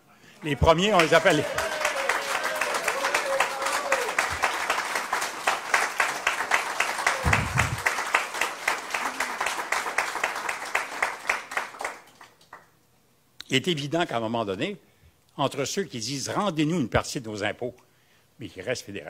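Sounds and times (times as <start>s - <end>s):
audience applauding: 0.4s - 12.7s.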